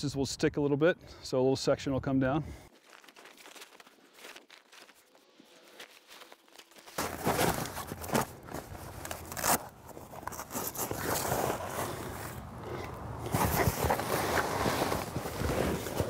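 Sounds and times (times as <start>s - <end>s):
tent fabric rustling and crinkling: 2.7s - 12.5s, 13.2s - 16.0s.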